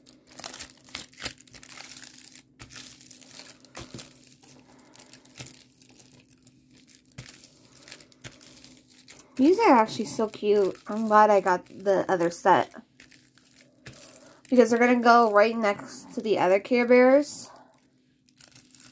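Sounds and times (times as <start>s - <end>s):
plastic packaging crinkling: 0.0s - 18.9s.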